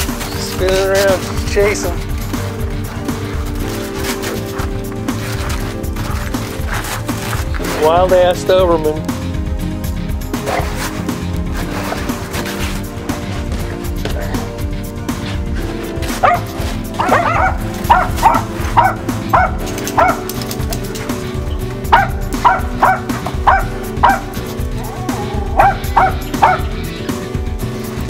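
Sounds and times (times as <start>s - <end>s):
background music: 0.0s - 28.0s
dogs barking: 2.8s - 7.7s, 10.3s - 11.0s, 15.2s - 27.1s.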